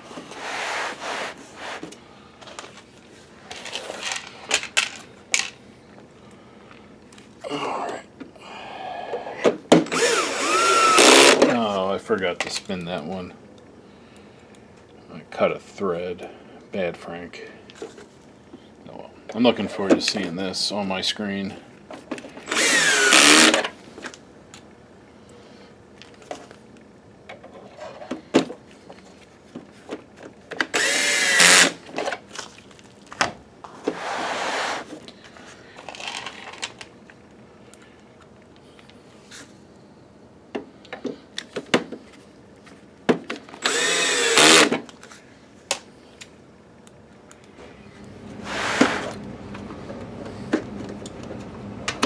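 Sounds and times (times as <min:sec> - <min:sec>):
cordless drill whining: 0:09.9 - 0:11.4, 0:22.4 - 0:23.6, 0:30.7 - 0:31.8, 0:43.6 - 0:44.7.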